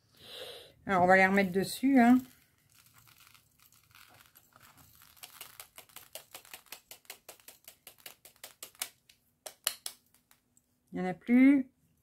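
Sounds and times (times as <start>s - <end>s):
small beads pattering down: 1.8s - 10.6s.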